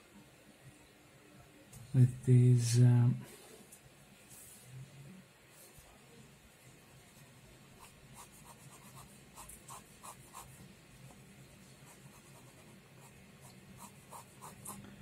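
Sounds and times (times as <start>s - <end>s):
pen sketching on paper: 7.8s - 10.6s, 11.8s - 14.8s.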